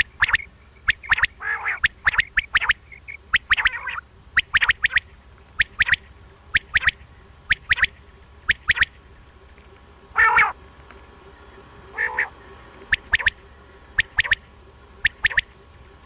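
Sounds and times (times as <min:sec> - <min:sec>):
low buzzy bird call: 0:00.0 - 0:16.0
quail three-note song: 0:10.1 - 0:10.6, 0:11.3 - 0:15.6.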